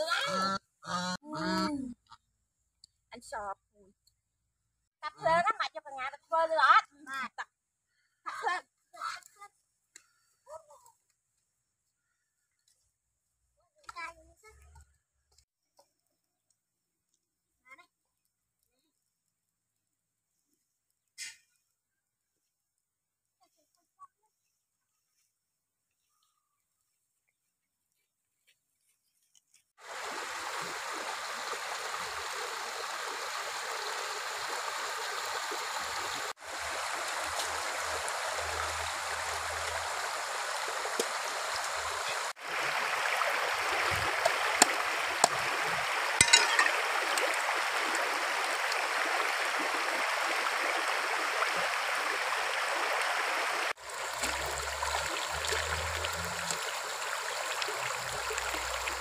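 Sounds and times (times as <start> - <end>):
river running over stones: 29.8 - 59.0
splashes in water: 29.8 - 59.0.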